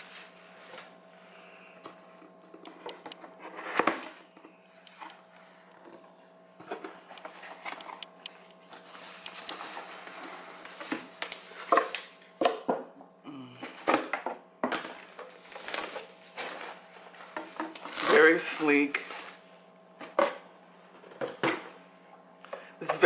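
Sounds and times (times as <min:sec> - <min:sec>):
faint steady hum: 0:00.0 - 0:23.0
paper and foam rustling: 0:08.8 - 0:11.9, 0:15.0 - 0:19.5.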